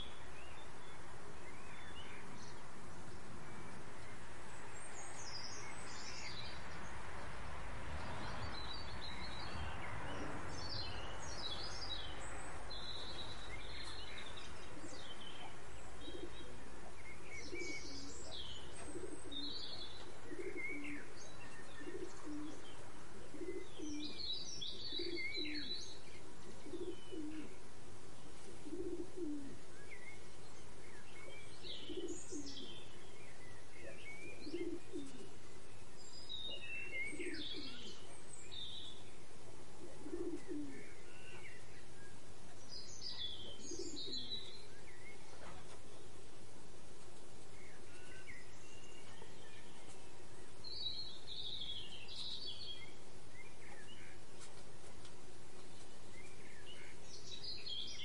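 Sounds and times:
sparrows chirping: 0.0s - 58.0s
dove cooing: 13.1s - 27.7s, 28.4s - 29.7s, 31.2s - 33.0s, 33.8s - 35.4s, 36.5s - 38.2s, 39.5s - 41.6s, 43.2s - 44.7s.

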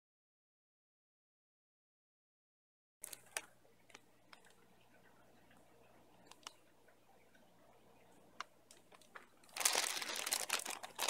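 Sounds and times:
plastic bag crinkling: 3.0s - 4.6s, 8.7s - 11.0s
faint clicks: 3.0s - 9.4s.

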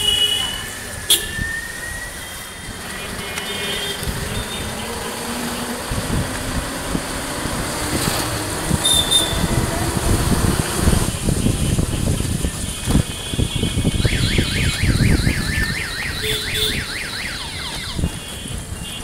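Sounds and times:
street traffic rumble: 0.0s - 19.0s
electronic warbling siren: 13.8s - 18.2s.

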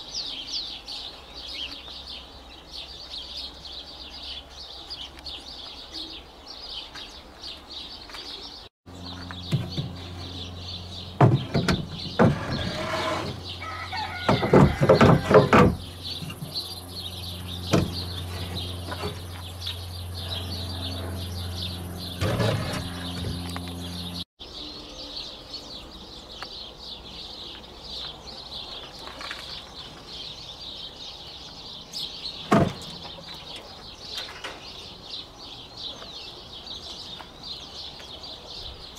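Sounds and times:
small birds chirping: 0.0s - 38.9s
steady low hum: 8.9s - 14.0s, 14.8s - 24.3s
loud knocks and clatters: 11.2s - 13.4s, 14.2s - 16.5s.

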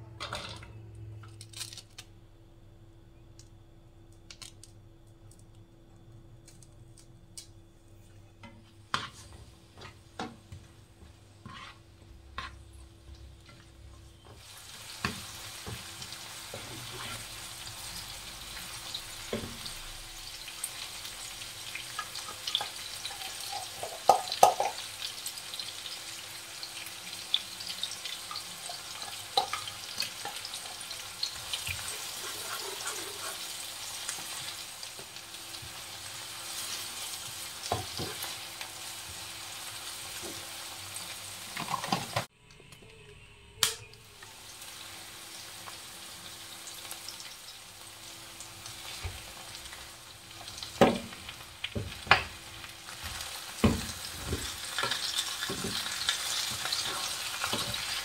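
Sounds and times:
spoon scraping a pan: 8.4s - 10.3s, 11.4s - 12.7s, 28.7s - 34.5s, 54.2s - 58.0s
onions sizzling in oil: 8.5s - 42.3s, 44.0s - 58.0s.

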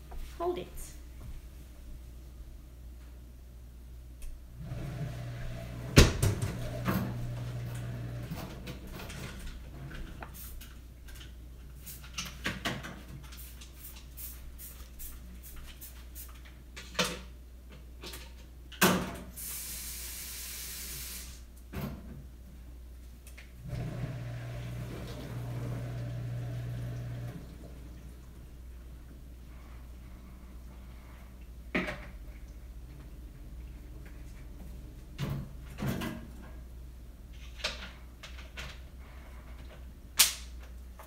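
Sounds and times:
steady hiss: 13.3s - 16.5s, 19.2s - 21.6s.

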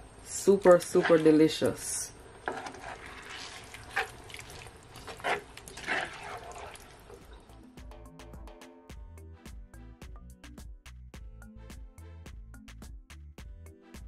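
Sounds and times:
stir-fry sizzling: 0.3s - 7.4s
spatula scraping skillet: 0.6s - 7.3s
light background music: 5.9s - 14.0s.

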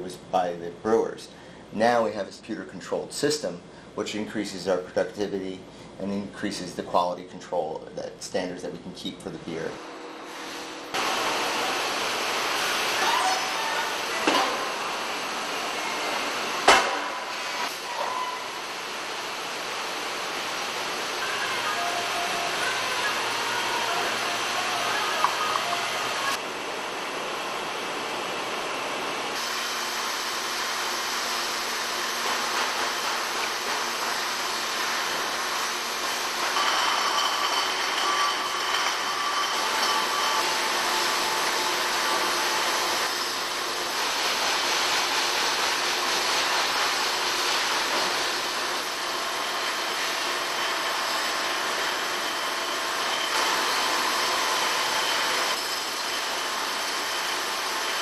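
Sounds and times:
bottling line machine din: 10.8s - 26.4s, 29.3s - 58.0s.

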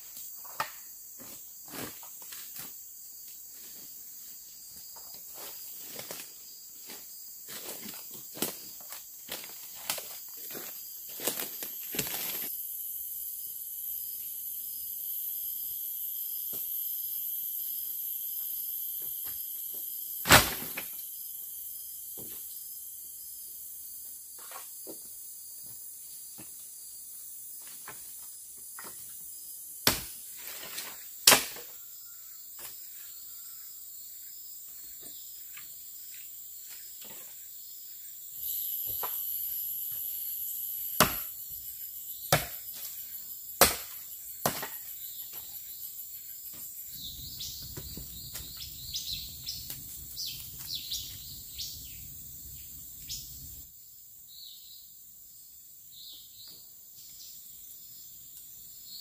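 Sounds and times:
high insect buzz: 0.0s - 59.0s
hum of forest insects: 0.0s - 59.0s
knife chopping into wood: 41.0s - 41.3s, 42.3s - 42.7s, 43.6s - 44.9s.

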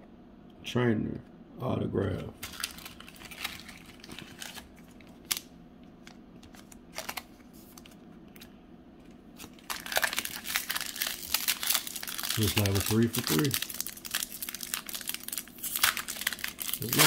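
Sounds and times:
cards and packaging rustling: 2.3s - 5.4s, 6.0s - 8.5s, 9.4s - 17.0s
foil wrapper crinkling: 2.4s - 8.5s, 9.4s - 17.0s.

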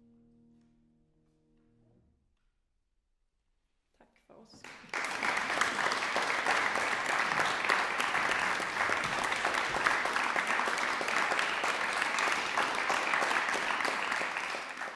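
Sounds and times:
applause: 4.6s - 14.9s.

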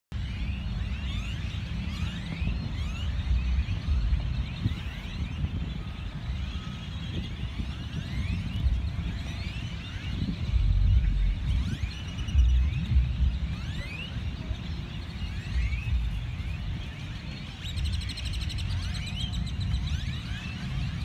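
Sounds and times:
flock of birds whistling: 0.2s - 21.0s
low rumble: 2.4s - 6.4s, 7.3s - 17.5s.

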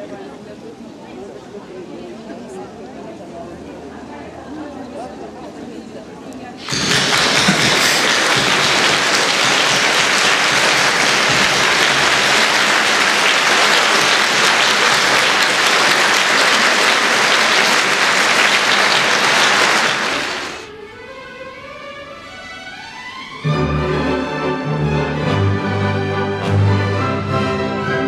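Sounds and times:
audience applauding: 6.6s - 20.7s.

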